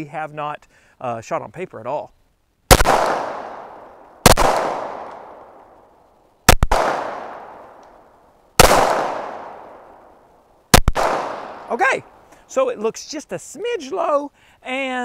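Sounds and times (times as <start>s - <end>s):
pistol shots with echo: 2.7s - 5.6s, 6.5s - 7.7s, 8.6s - 9.9s, 10.7s - 11.7s.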